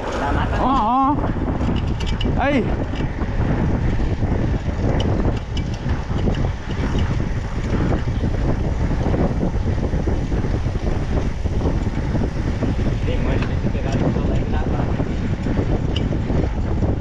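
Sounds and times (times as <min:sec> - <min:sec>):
bike tyres rolling on asphalt: 0:00.0 - 0:17.0
wind on microphone: 0:00.0 - 0:17.0.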